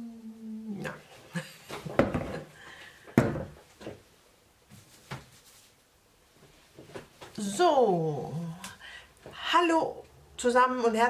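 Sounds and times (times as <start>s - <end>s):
objects knocking and bumping: 1.7s - 4.0s.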